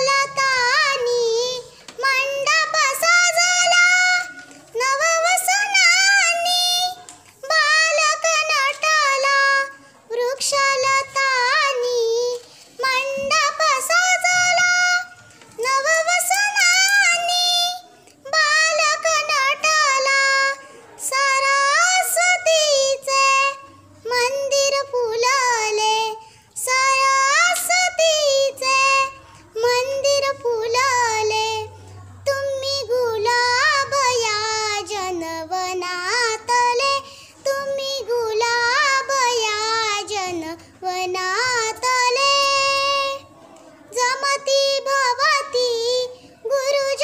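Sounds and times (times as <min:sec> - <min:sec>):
girl singing alone: 0:00.0 - 0:47.0.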